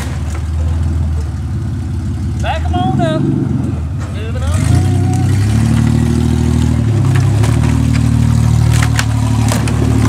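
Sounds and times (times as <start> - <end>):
car engine running: 0.0 - 10.0
boards cracking under tires: 6.7 - 10.0.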